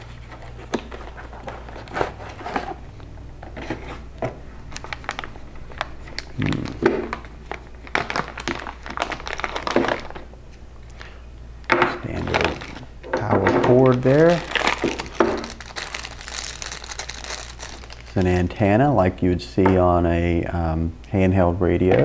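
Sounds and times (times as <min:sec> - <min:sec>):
plastic bag crinkling: 0:04.6 - 0:10.3, 0:12.1 - 0:12.9, 0:13.6 - 0:18.6.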